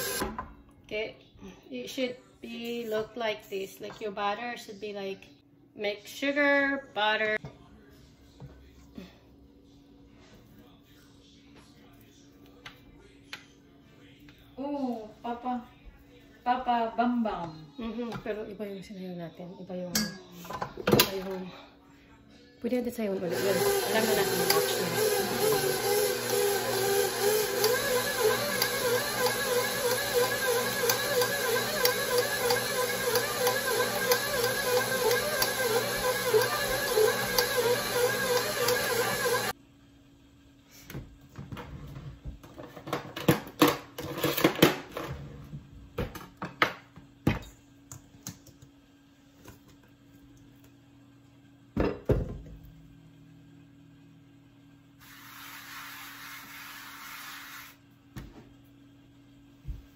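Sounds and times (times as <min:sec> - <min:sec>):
stand mixer motor hum: 0:00.0 - 0:00.2, 0:23.2 - 0:39.5.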